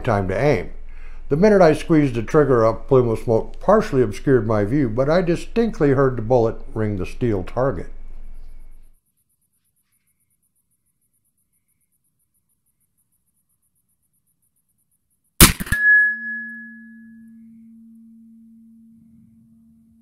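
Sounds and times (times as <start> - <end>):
revolver gunshot: 15.4 - 15.9
steel target ringing: 15.4 - 18.0.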